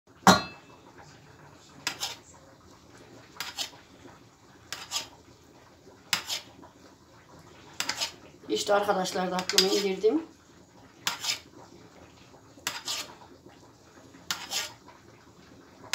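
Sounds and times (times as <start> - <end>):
metal spoon scraping metal tray: 1.8 - 2.2, 3.4 - 3.7, 4.7 - 5.1, 6.1 - 6.5, 7.8 - 8.2, 9.4 - 10.0, 11.0 - 11.5, 12.6 - 13.2, 14.3 - 14.8.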